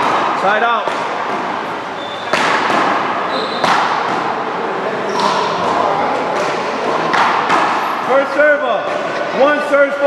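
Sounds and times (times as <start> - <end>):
rubber ball smacking: 2.3 - 4.4.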